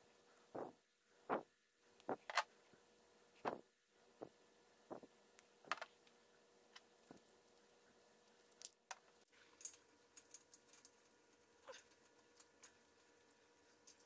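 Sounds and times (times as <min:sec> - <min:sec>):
faint scattered clicks: 0:06.8 - 0:14.0.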